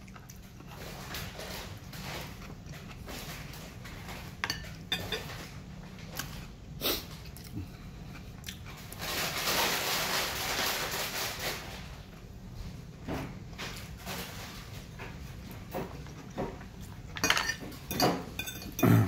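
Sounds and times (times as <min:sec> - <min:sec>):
chewing: 0:00.0 - 0:04.8, 0:06.0 - 0:09.0.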